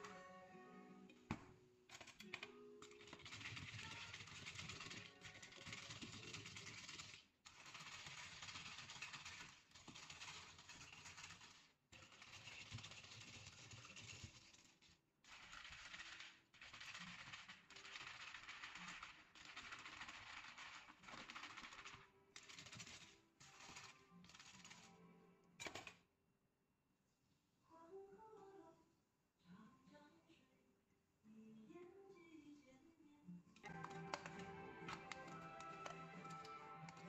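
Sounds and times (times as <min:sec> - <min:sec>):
spoon stirring ice in cups: 0:01.9 - 0:25.0, 0:33.6 - 0:37.0.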